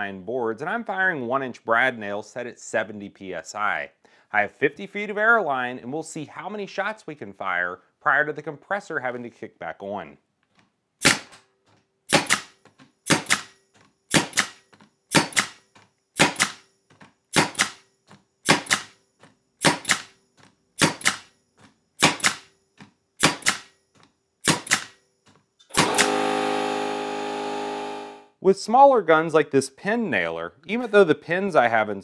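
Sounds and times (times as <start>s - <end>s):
brad nailer firing: 11.0s - 11.5s, 12.1s - 16.7s, 17.3s - 19.0s, 19.6s - 20.2s, 20.8s - 21.3s, 22.0s - 22.5s, 23.2s - 23.8s, 24.4s - 25.0s, 25.7s - 28.2s
air compressor running: 25.7s - 28.3s.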